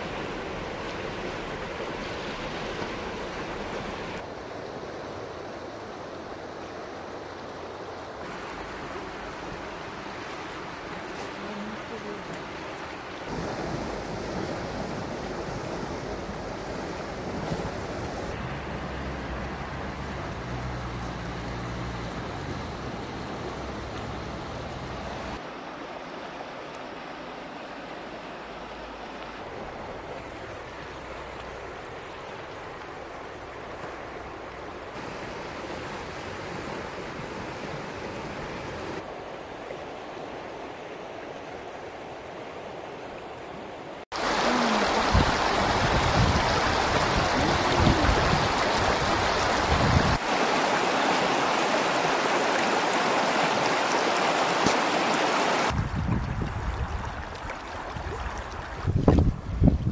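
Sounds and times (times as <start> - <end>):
river rushing with ice: 0.0 - 59.9.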